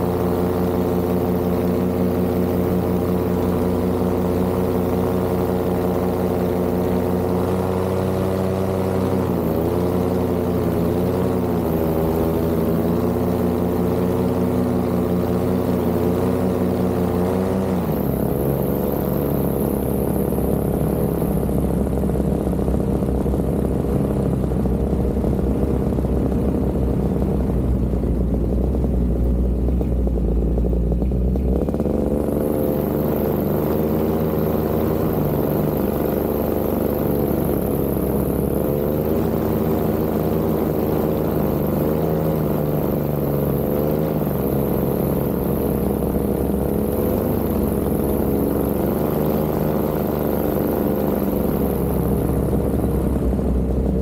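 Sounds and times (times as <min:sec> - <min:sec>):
paramotor engine running: 0:00.0 - 0:54.0.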